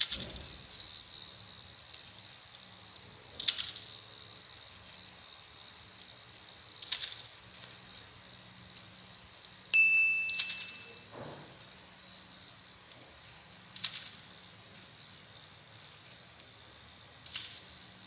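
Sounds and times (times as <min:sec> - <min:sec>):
toy motor and gearbox whirring: 0:00.0 - 0:18.0
sharp mechanical click: 0:03.3 - 0:04.0, 0:06.7 - 0:07.3, 0:13.7 - 0:14.3, 0:17.2 - 0:17.7
high electronic tone: 0:09.8 - 0:11.1.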